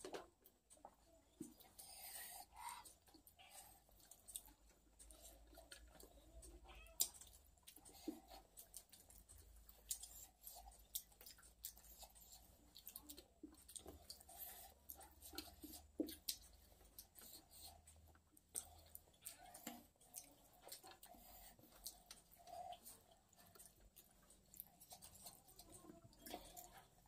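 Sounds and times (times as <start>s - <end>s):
quiet chewing: 0.0s - 27.0s
faint meow-like calls: 6.6s - 7.1s.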